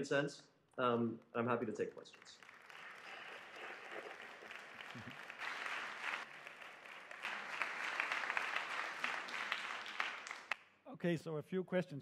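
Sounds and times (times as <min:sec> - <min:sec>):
audience applauding: 0:02.1 - 0:10.6.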